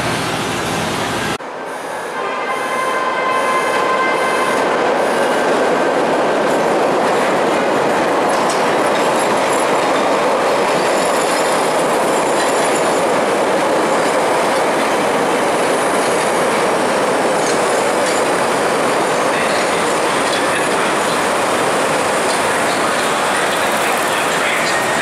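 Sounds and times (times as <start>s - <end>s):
steel wheels on rails: 4.8s - 25.0s.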